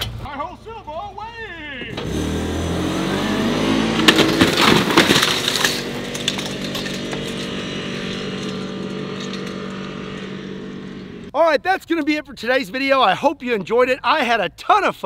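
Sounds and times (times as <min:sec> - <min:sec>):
vehicle engine revving: 0:01.9 - 0:11.3
crashing and breaking: 0:03.7 - 0:10.5.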